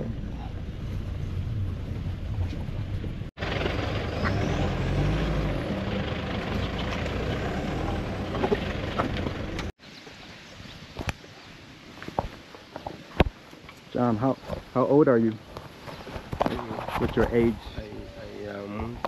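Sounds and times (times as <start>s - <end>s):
engine and tyres rumbling: 0.0s - 9.8s, 14.3s - 19.0s
knocks and rattles from bumps: 6.2s - 9.7s.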